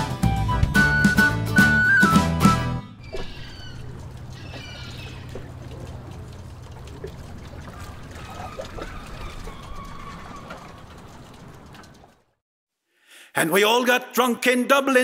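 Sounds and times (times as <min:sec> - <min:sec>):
low hum: 0:02.8 - 0:12.3
bird calls: 0:02.9 - 0:12.0
water trickling and lapping: 0:02.9 - 0:12.4.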